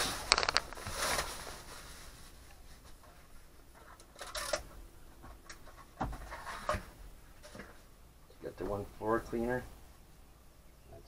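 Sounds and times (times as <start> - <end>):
plastic rustling and scraping: 0.0 - 7.9.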